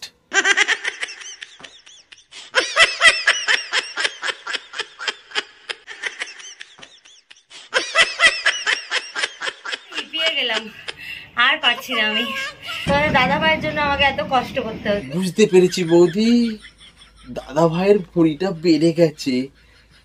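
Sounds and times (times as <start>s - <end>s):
man laughing: 15.0s - 20.0s.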